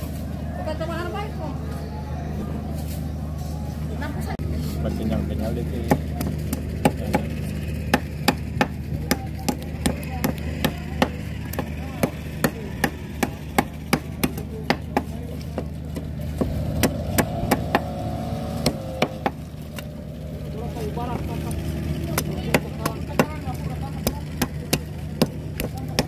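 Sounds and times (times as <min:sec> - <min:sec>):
cleaver chopping on wooden block: 0:05.8 - 0:19.4, 0:22.1 - 0:26.0.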